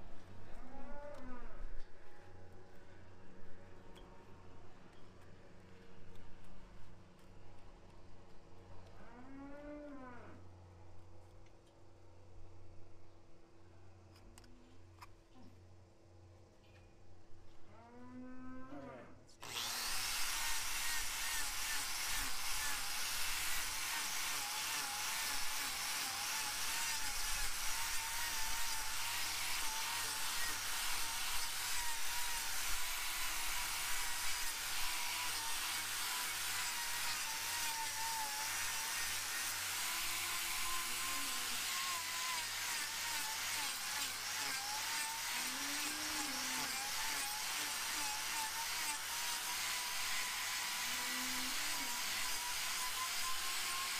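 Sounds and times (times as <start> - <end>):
angle grinder grinding hoof: 19.4 - 53.9.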